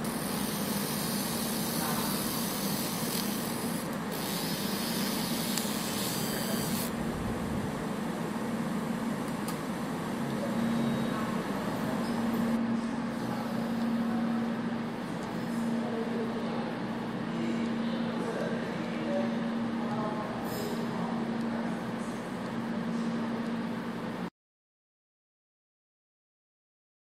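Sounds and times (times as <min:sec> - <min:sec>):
laser marking machine humming: 0:00.0 - 0:18.2.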